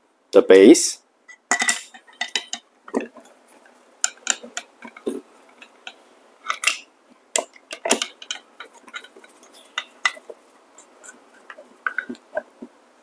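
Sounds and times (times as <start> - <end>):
metal clicks and clinks: 1.5 - 3.2, 4.0 - 10.3.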